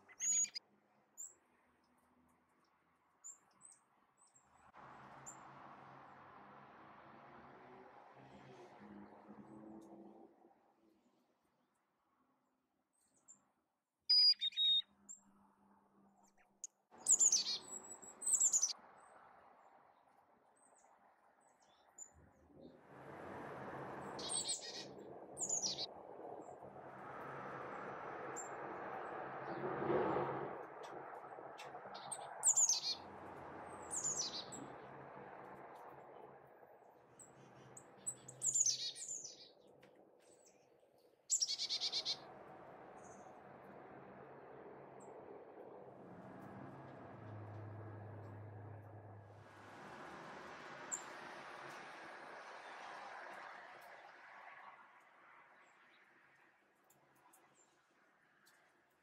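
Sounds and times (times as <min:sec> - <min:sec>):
songbirds calling: 0:00.0 - 0:00.6, 0:17.0 - 0:18.8, 0:24.2 - 0:25.9, 0:31.6 - 0:33.0, 0:33.7 - 0:34.8, 0:37.2 - 0:42.3
chickadee calls: 0:41.3 - 0:42.2
soft background rush: 0:41.4 - 0:55.4.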